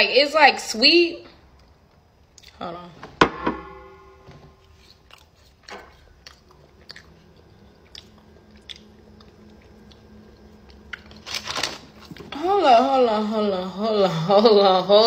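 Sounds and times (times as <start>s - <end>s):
person chewing food: 1.6s - 2.6s, 4.6s - 12.3s.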